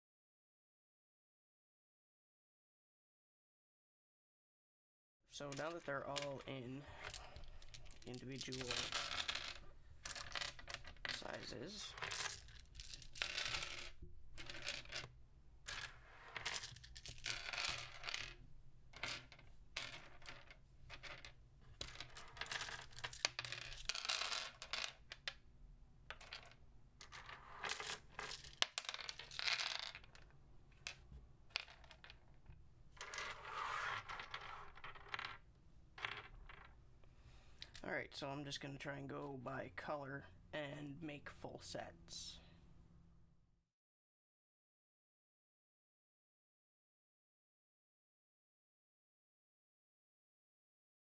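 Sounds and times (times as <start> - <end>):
plastic dice clicking and rattling: 5.5 - 18.4, 19.0 - 25.4, 26.1 - 36.8, 37.6 - 37.9.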